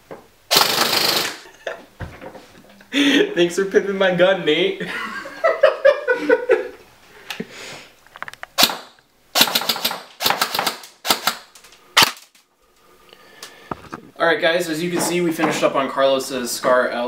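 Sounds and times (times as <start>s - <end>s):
airsoft rifle firing bursts: 0.5s - 1.4s, 8.6s - 12.2s
man laughing: 1.4s - 1.9s, 2.8s - 3.5s, 4.8s - 7.5s.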